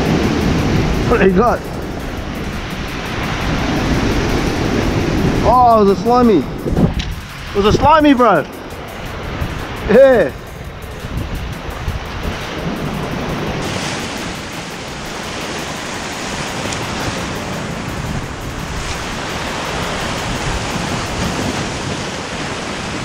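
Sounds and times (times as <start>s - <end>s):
wind buffeting microphone: 0.0s - 23.0s
surf breaking against rocks: 11.7s - 23.0s.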